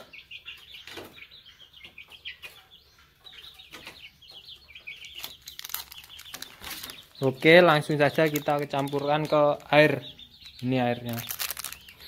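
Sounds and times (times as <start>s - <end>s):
chickens clucking and peeping: 0.0s - 12.0s.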